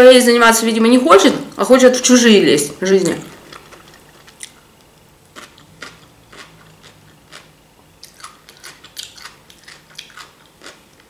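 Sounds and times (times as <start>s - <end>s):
person chewing cucumber: 3.3s - 11.0s.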